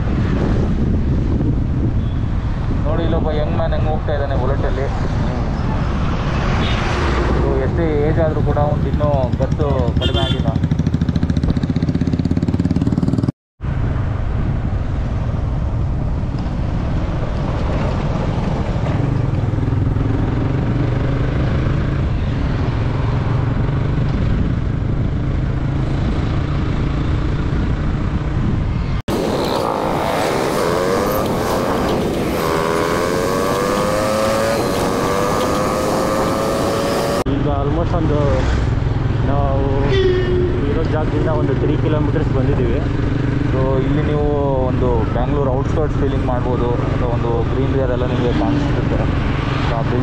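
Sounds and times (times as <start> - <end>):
low wind rumble: 0.0 - 50.0
motorcycle engine accelerating: 8.8 - 13.3, 17.9 - 37.4.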